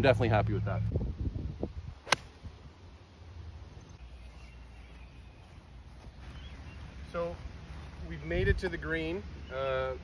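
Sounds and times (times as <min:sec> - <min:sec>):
golf club striking ball: 0:02.0 - 0:02.4.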